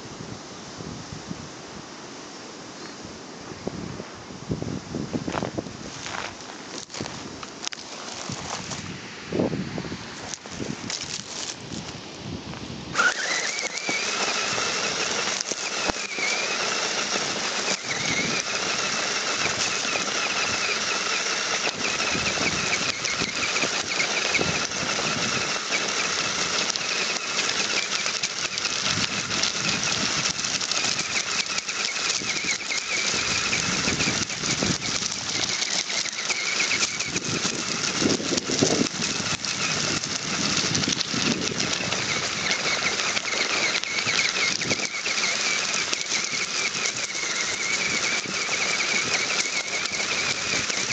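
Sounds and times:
wheels crunching on gravel: 3.7 - 50.9
electric motor whining: 10.2 - 50.9.

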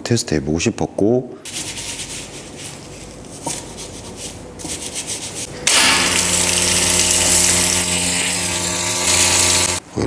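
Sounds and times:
brush scrubbing a wheel: 1.5 - 5.5
machine hum: 1.5 - 10.0
pressure-washer spray: 5.4 - 9.8.

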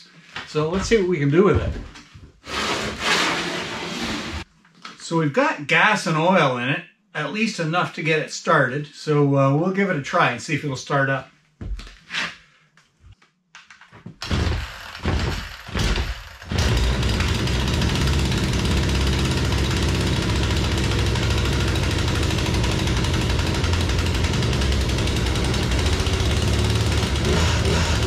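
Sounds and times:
chainsaw engine running: 14.3 - 28.0.

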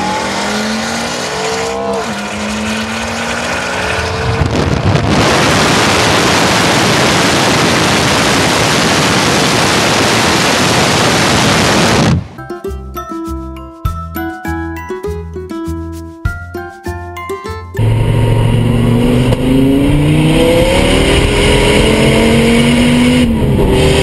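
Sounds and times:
car engine accelerating hard: 0.0 - 12.2, 17.8 - 24.0
wind buffeting microphone: 3.9 - 8.0.

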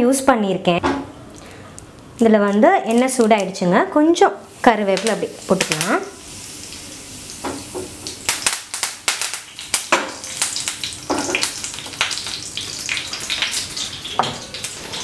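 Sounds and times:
leaves sizzling in hot oil: 2.5 - 15.0
oil crackling and spattering: 8.0 - 15.0.

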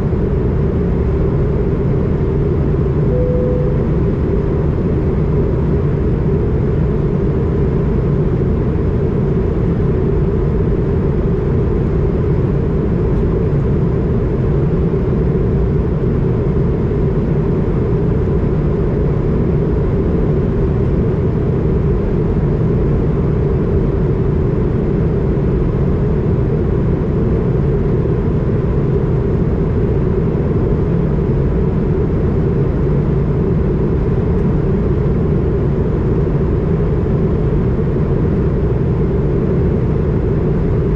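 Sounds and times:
jet engines humming: 0.3 - 9.9
faint steady high tone: 3.1 - 5.0.

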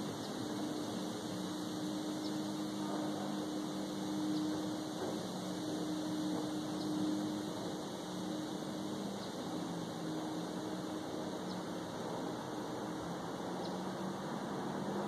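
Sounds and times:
distant engine drone: 0.0 - 15.0
outdoor background hiss: 0.0 - 15.0.

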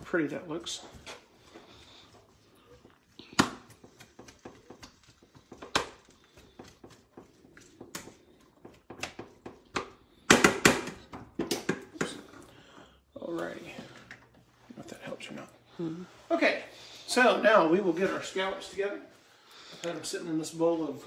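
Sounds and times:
kitchen clicks and knocks: 6.7 - 12.4.

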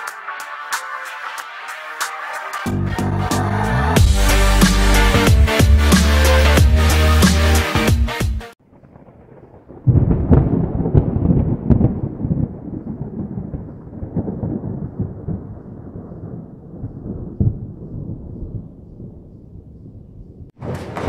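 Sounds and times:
thunder rolling: 8.6 - 21.0
sharp thunder cracks: 8.7 - 21.0.

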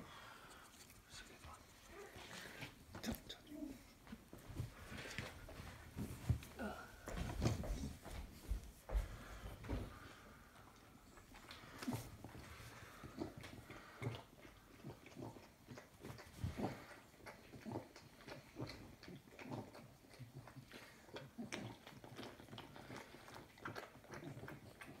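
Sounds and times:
dog licking and chewing: 9.9 - 25.0.

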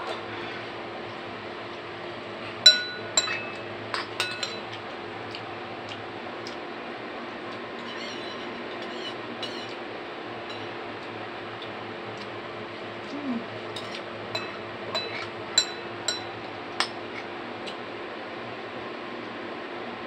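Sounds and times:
steady background hum: 0.0 - 20.0
spoon clinking on bowl: 2.7 - 4.7, 10.5 - 10.7, 13.8 - 16.9.

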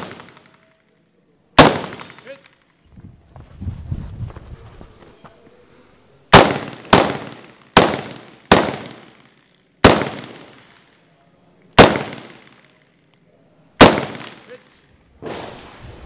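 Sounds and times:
rifle shots: 0.0 - 0.7, 1.6 - 2.4, 6.3 - 10.9, 11.8 - 12.7, 13.8 - 14.6.

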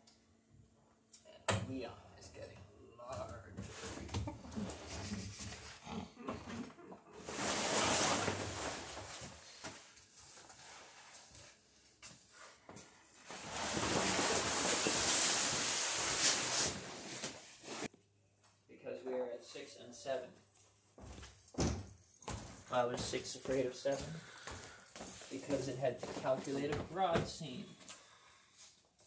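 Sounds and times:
sailcloth rustling and crinkling: 7.2 - 11.6, 13.2 - 17.9.

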